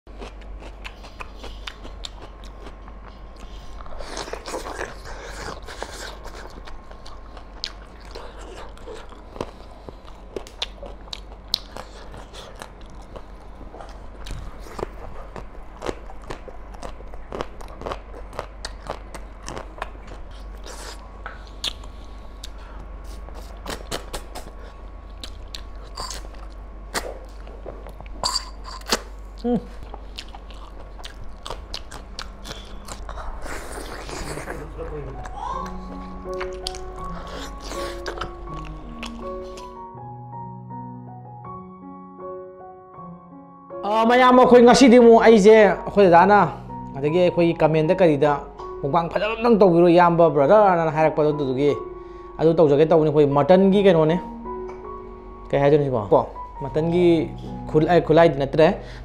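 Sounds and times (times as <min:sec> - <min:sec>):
fingers working through curry and rice: 0:00.1 - 0:21.0
crunchy bites and chewing: 0:00.1 - 0:39.9.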